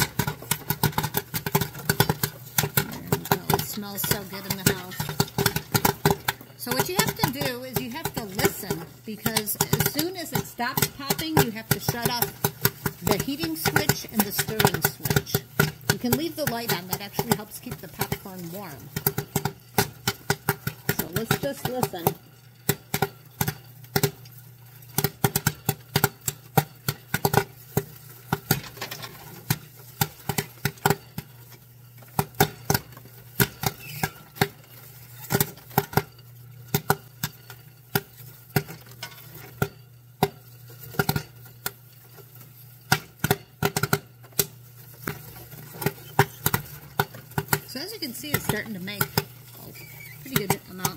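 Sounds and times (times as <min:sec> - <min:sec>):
popcorn popping: 0:00.0 - 0:50.9.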